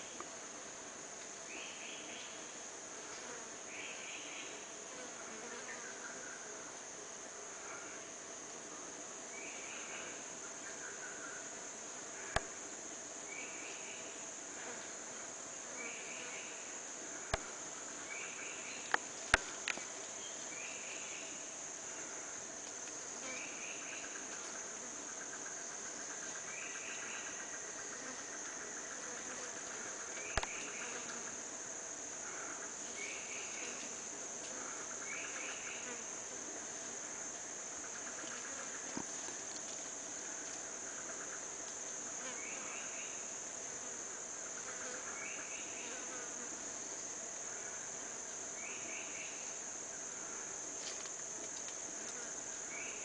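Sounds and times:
insect trilling chirp: 0:00.0 - 0:08.2, 0:09.0 - 0:53.0
insects high-pitched drone: 0:00.0 - 0:53.0.

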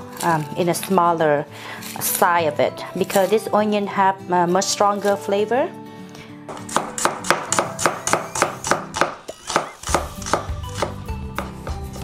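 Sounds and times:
knife slicing onion on board: 0:06.5 - 0:12.0.

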